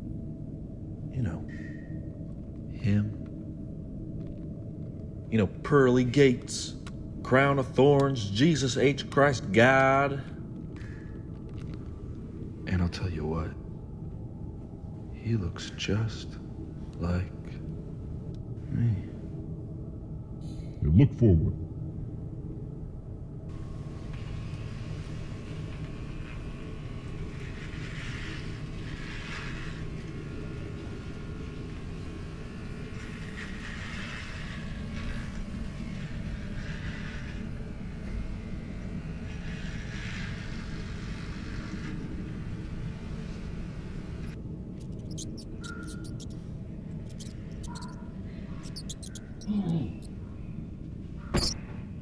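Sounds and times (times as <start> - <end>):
rat scratching: 24.0 - 38.3, 44.8 - 50.4
rat squeaks: 44.8 - 50.4, 51.2 - 51.6.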